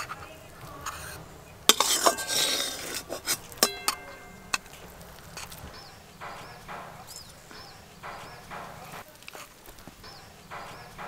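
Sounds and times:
metal spatula scraping a pan: 0.0 - 7.4
metal clink: 1.7 - 9.0.

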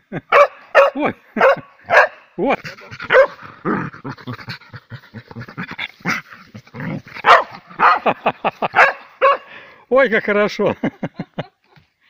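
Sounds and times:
dog barking: 0.3 - 2.2, 3.1 - 3.4, 7.2 - 8.2, 8.8 - 9.5
dog grunting and growling: 2.4 - 8.3.

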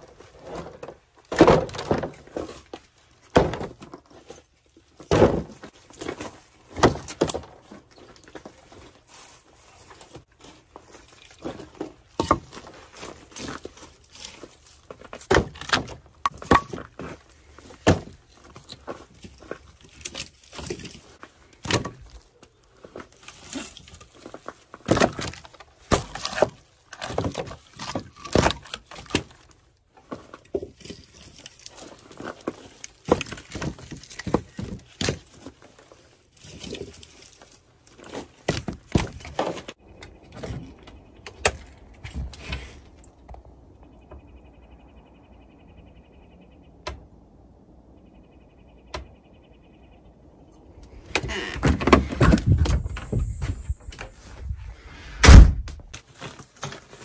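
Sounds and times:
logs knocking and thudding: 0.3 - 4.4, 5.0 - 8.5, 10.1 - 21.0, 21.6 - 22.2, 22.8 - 35.6, 38.0 - 42.6.

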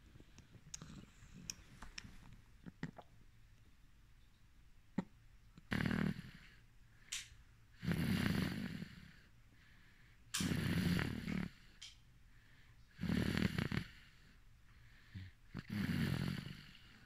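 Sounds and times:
person snoring: 10.4 - 11.6, 15.2 - 17.0.

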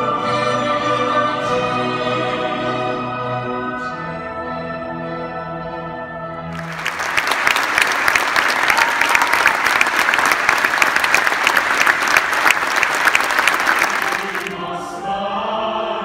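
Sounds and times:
audience applause: 6.6 - 14.6.

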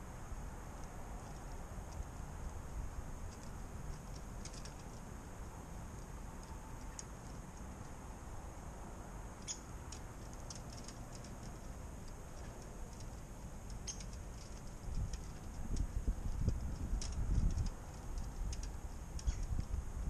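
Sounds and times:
low background rumble: 0.0 - 20.0
birds pecking at seed: 0.7 - 8.1, 9.4 - 19.8.

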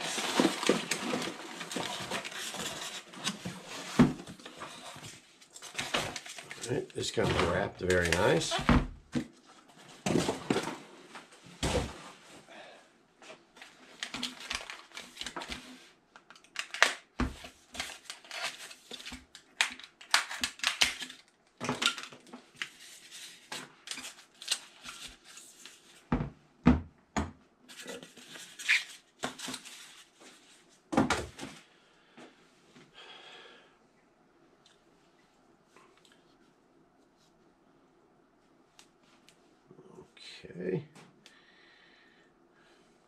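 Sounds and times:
cardboard and wrap rustling: 0.0 - 12.2.

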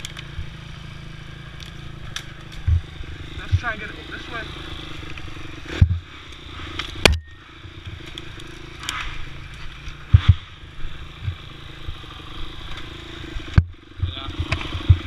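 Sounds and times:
dirt bike engine at low revs: 0.0 - 15.0
knocks and scrapes on branches: 1.6 - 3.8, 5.0 - 12.0.

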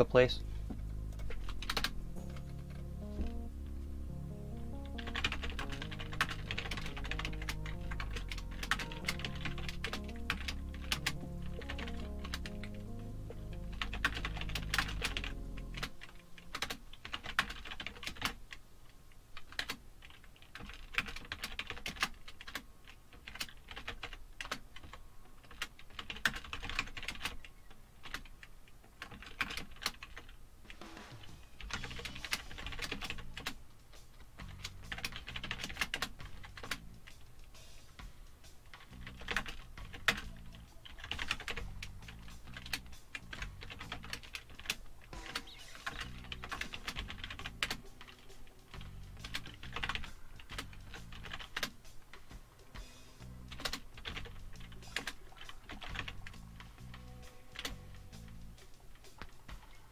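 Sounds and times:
background music with low bass: 0.0 - 16.8, 30.8 - 59.9
keyboard typing clicks: 1.1 - 3.5, 4.7 - 18.4.

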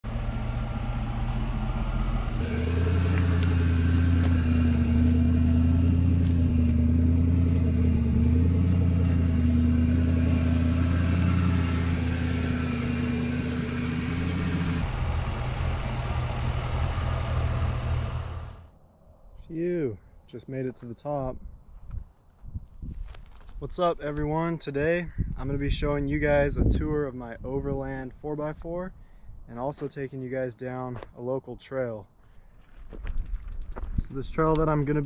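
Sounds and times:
vehicle engine humming: 0.0 - 18.8.

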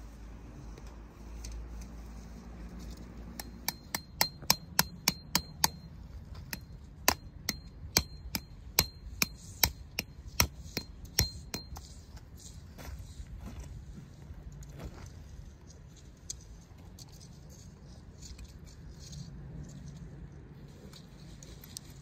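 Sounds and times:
hammer striking metal: 3.4 - 11.9.

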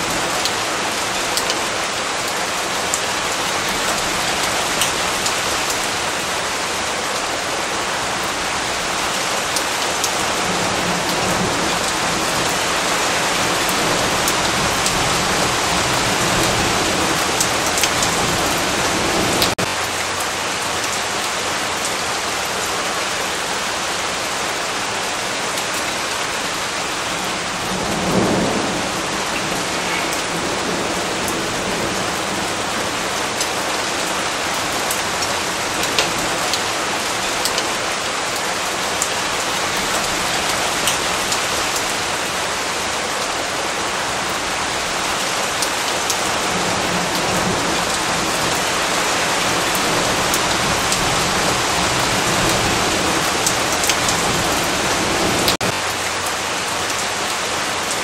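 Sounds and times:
steady rain falling: 0.0 - 58.0
thunder rumbling: 26.5 - 33.7.

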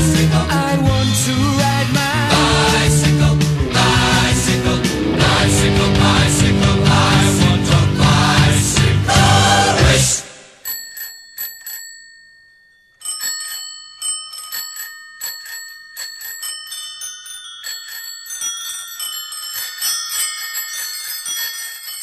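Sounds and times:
bicycle bells ringing: 10.6 - 22.0.

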